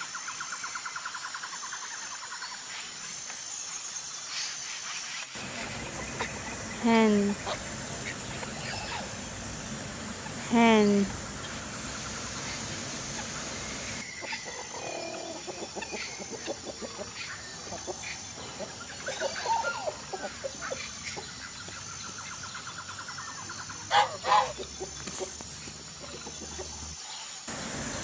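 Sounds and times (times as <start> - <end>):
chickens clucking: 5.4 - 21.9, 23.8 - 27.0.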